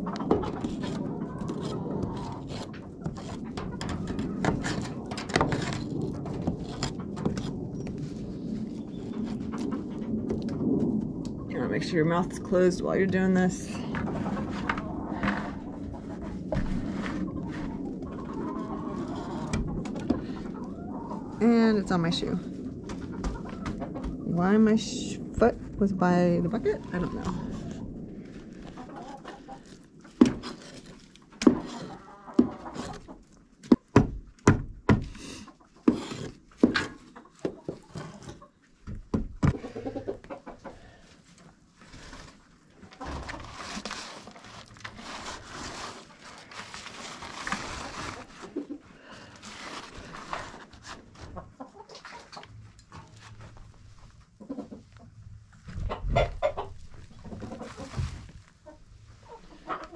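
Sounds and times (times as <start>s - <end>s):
chickens clucking: 0.0s - 4.7s, 13.3s - 25.2s, 28.6s - 30.2s, 31.2s - 33.3s, 36.9s - 38.8s, 39.4s - 41.2s, 51.1s - 53.1s, 54.2s - 59.9s
rustling noise: 0.0s - 33.8s, 35.0s - 59.9s.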